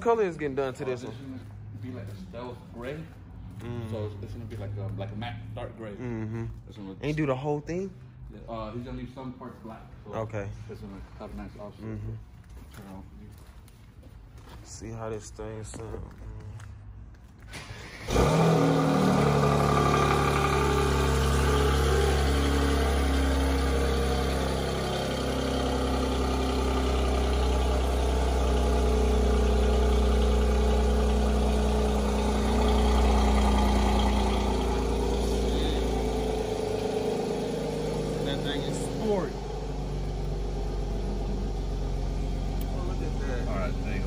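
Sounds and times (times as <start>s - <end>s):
car engine starting and idling: 15.6s - 44.0s.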